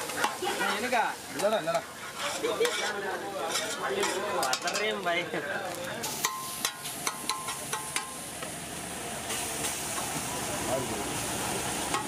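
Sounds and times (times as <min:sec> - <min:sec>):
metal spatula scraping iron griddle: 0:00.0 - 0:05.0
food sizzling: 0:00.0 - 0:12.0.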